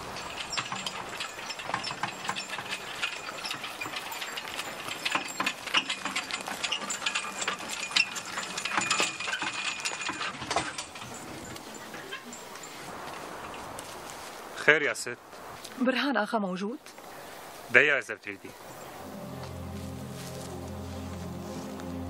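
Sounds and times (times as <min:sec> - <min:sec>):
carriage wheels rattling: 0:00.0 - 0:13.9.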